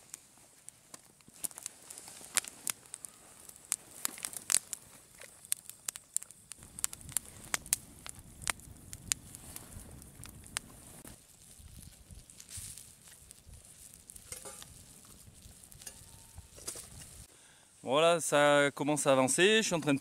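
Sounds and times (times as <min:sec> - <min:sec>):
campfire crackling and popping: 0:00.0 - 0:17.3.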